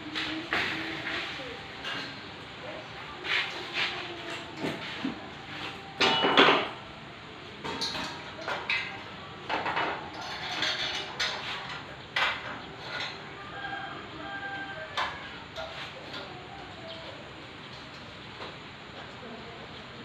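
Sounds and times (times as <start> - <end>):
metal bars clanking and rattling: 7.6 - 13.2.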